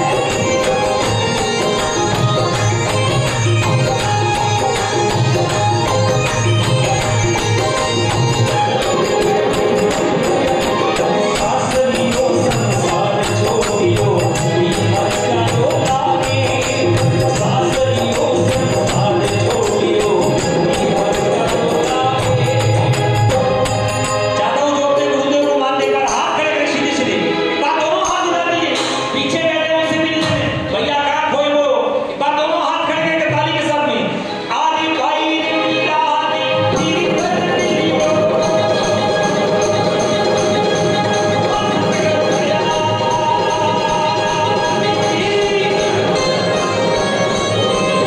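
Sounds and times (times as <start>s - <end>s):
tambourine-like jingle: 0.0s - 26.6s
steady percussion beat: 0.0s - 30.8s, 36.5s - 48.0s
person singing devotional song: 0.0s - 31.4s, 33.0s - 48.0s.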